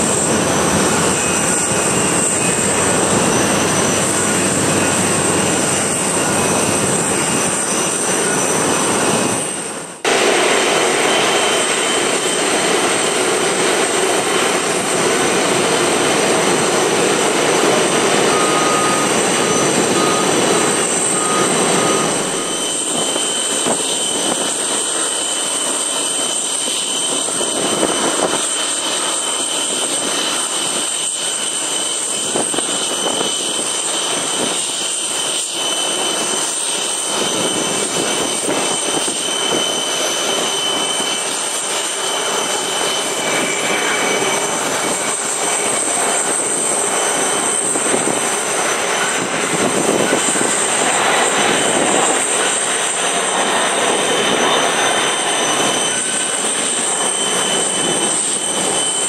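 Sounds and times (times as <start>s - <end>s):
jet engines with turbine whine: 0.0s - 59.0s
short beeps: 18.2s - 23.0s.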